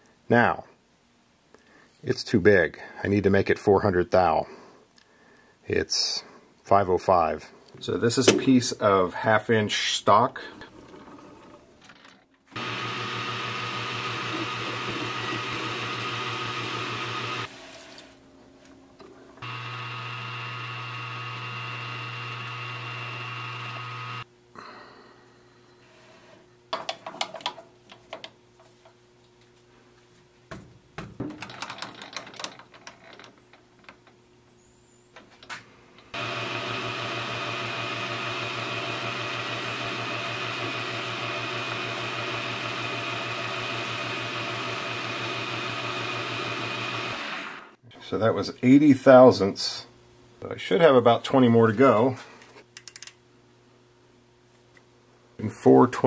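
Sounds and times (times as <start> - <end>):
metal lathe motor humming: 12.6 - 17.5, 19.4 - 24.2, 36.2 - 47.7.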